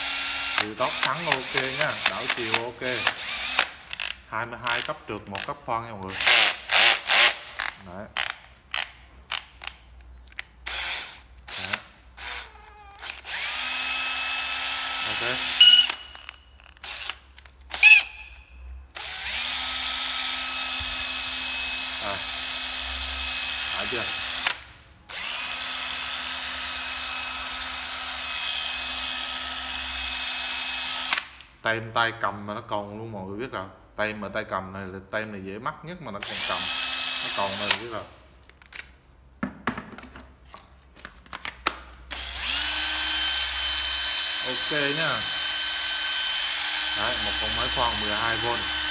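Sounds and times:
cordless drill whining: 0.0s - 5.5s, 6.1s - 8.3s, 10.6s - 31.3s, 36.2s - 37.9s, 42.1s - 48.9s
tool handling clicks and knocks: 38.4s - 41.9s.

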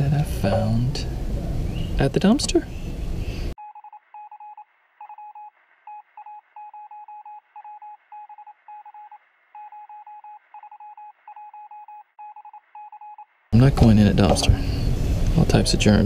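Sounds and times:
short electronic beeps: 3.6s - 13.3s.

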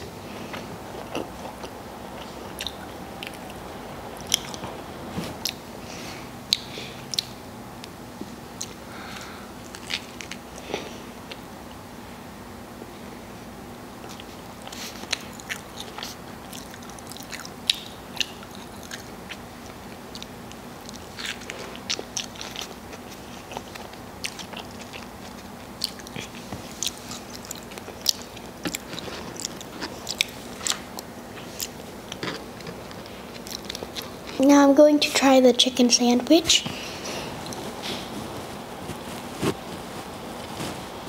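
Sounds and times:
person chewing: 0.0s - 7.4s, 8.6s - 11.5s, 14.0s - 34.4s, 36.8s - 41.0s
mouth clicks and smacks: 14.0s - 19.4s.

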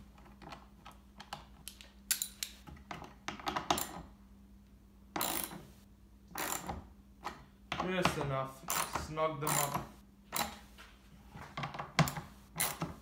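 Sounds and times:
bolts and nuts clicking: 0.2s - 4.1s, 5.1s - 5.7s, 6.3s - 10.6s, 11.6s - 13.0s.

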